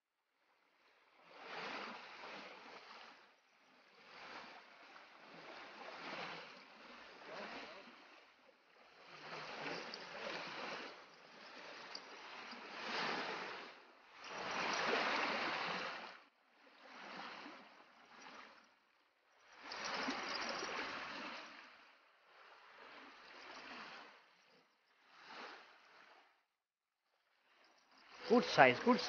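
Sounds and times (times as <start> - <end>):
small waves washing on shore: 0.8 - 26.3, 27.4 - 29.0.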